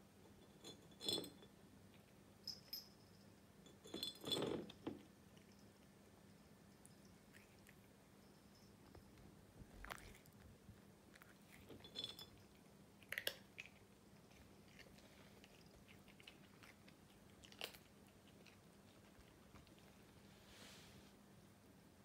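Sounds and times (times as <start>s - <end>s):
cat crunching dry treats: 9.8s - 10.4s, 11.1s - 20.0s.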